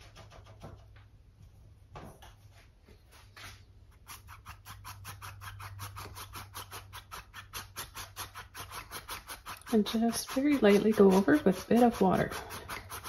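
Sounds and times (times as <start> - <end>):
paintbrush scratching in jar: 4.0 - 13.0.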